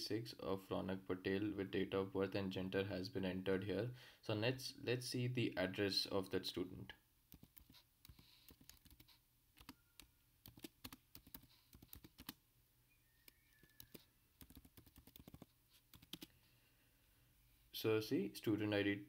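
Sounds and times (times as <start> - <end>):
typing on a keyboard: 7.3 - 12.4, 13.2 - 16.3.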